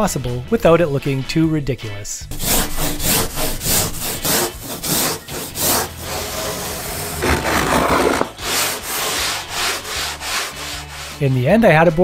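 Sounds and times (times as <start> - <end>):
sanding foam: 2.3 - 11.4.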